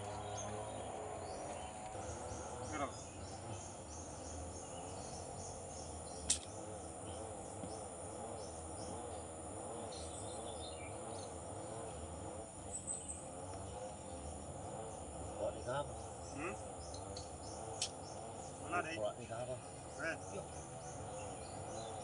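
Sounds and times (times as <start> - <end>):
insects chirping: 0.0 - 22.0
sharp click: 6.2 - 6.6.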